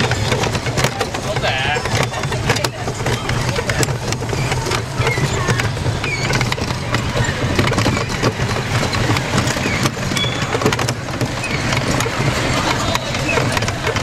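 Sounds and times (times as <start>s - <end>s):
rickshaw rattling and knocking: 0.0s - 14.0s
short high squeaks: 4.3s - 6.5s, 9.5s - 10.7s, 11.3s - 12.2s.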